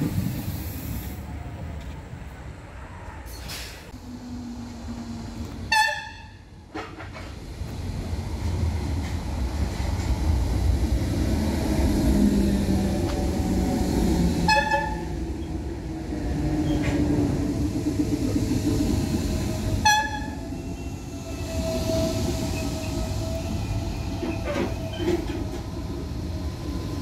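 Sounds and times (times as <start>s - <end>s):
electric train rumble: 0.0s - 27.0s
train horn toot: 5.7s - 6.5s, 14.4s - 15.1s, 19.8s - 20.4s.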